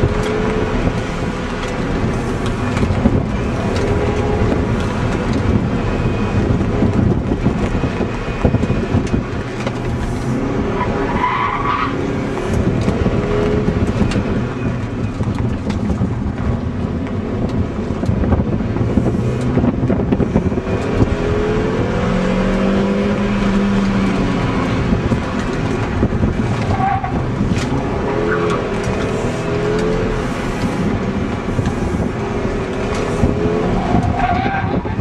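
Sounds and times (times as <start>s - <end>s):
car engine running hard: 0.0s - 35.0s.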